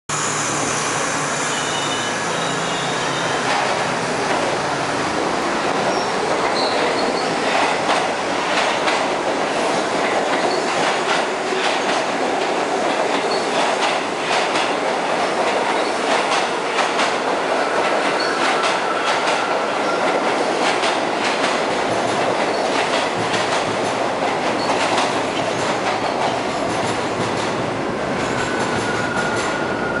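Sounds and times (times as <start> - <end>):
faint high wheel squeal: 0.1 - 3.5
subway train rumbling past: 0.1 - 30.0.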